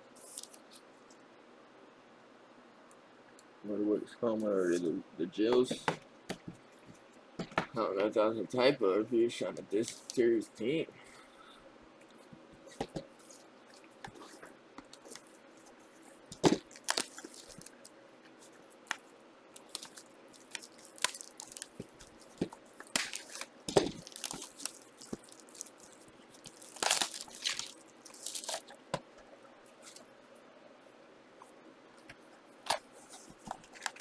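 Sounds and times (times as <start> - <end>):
wrappers and cards crinkling: 12.6 - 28.9, 32.7 - 34.0.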